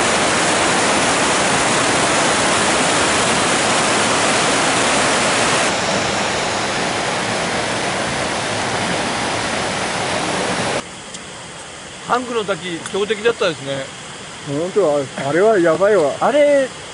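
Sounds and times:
stream rushing over rocks: 0.0s - 10.8s.

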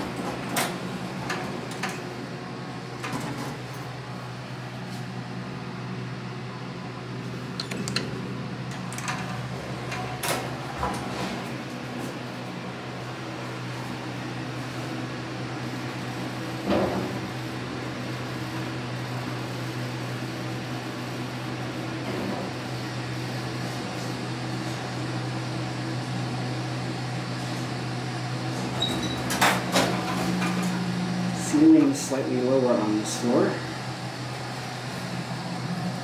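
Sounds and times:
elevator car humming: 0.0s - 36.0s
elevator doors clattering open: 7.6s - 11.5s, 28.5s - 30.9s.

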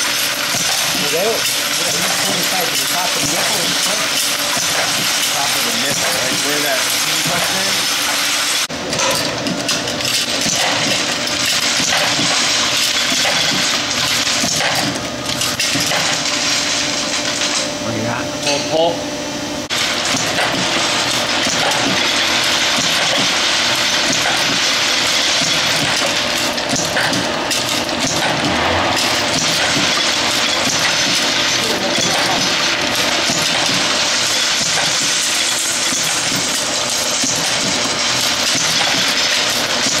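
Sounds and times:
machine clattering steadily: 0.0s - 17.8s, 19.6s - 40.0s.

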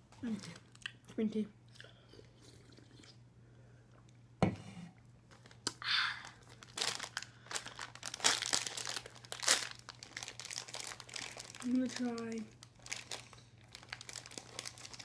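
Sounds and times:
snack wrapper crinkling and tearing: 5.3s - 15.0s.

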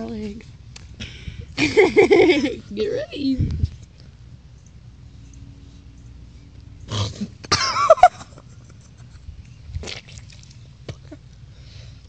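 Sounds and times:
person coughing and gagging: 7.5s - 8.1s.

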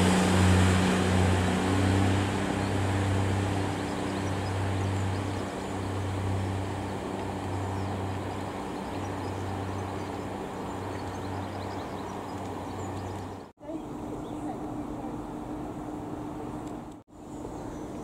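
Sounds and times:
diesel train engine drone: 0.0s - 7.9s.

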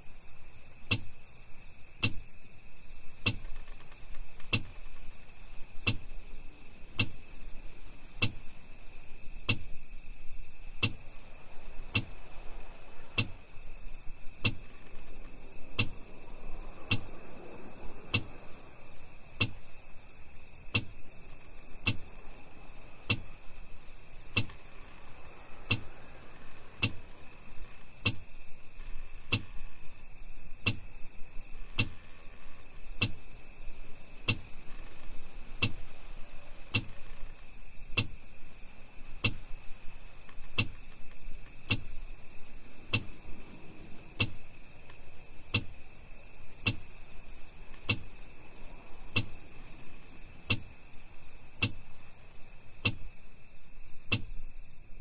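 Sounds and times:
night insects chirring: 0.0s - 55.0s
hazard light flasher clicking: 20.7s - 20.9s, 21.8s - 22.0s, 24.4s - 24.6s, 25.7s - 25.9s, 26.8s - 27.0s, 34.3s - 34.5s, 39.2s - 39.5s, 46.6s - 46.8s, 47.8s - 48.1s, 51.6s - 51.8s.

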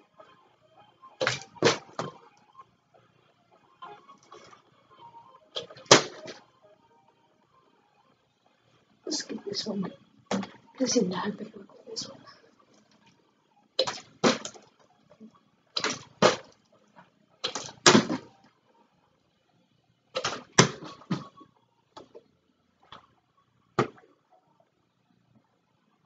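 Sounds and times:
plastic bottle landing thuds: 13.8s - 14.6s, 17.6s - 18.2s.

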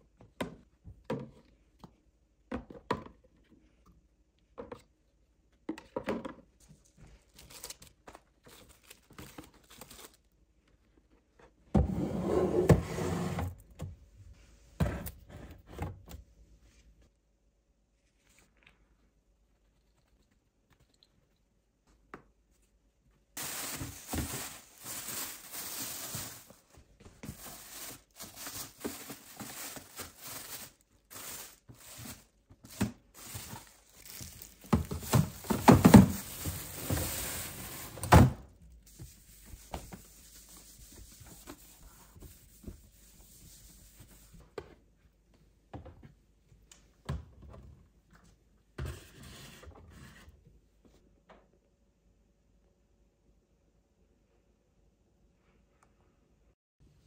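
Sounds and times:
plastic bin liner rustling: 23.4s - 38.5s
plastic bins knocking: 32.6s - 38.4s.

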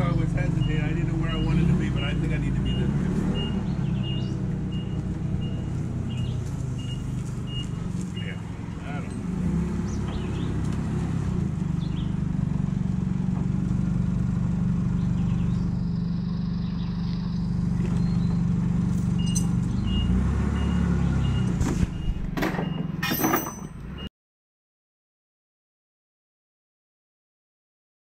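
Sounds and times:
forklift engine running: 0.0s - 24.1s
reversing alarm beeps: 2.6s - 8.4s, 19.2s - 23.0s.

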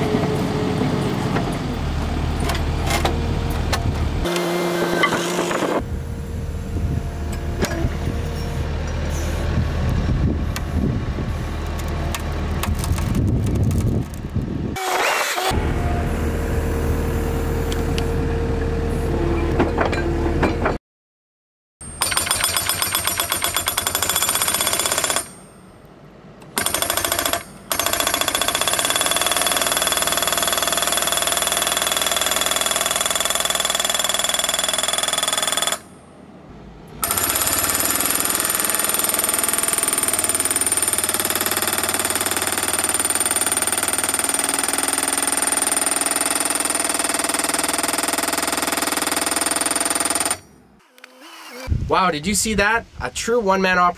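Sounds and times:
loader engine running: 0.0s - 14.8s, 15.4s - 20.8s.

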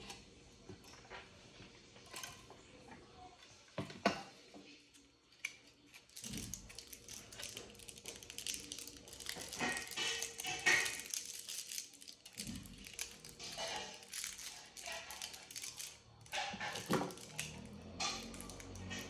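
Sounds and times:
wires and foil crinkling: 4.9s - 19.0s.

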